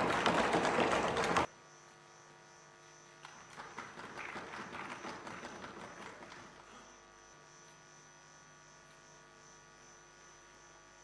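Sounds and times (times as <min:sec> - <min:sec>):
applause: 0:00.0 - 0:01.5, 0:03.5 - 0:06.6
low electrical hum: 0:00.0 - 0:11.0.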